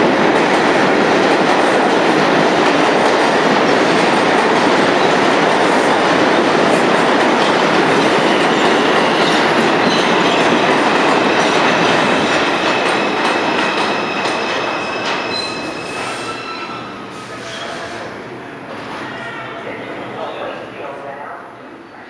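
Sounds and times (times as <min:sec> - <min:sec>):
train wheels rumbling on rail: 0:00.0 - 0:20.8
high squealing tones: 0:13.9 - 0:18.1.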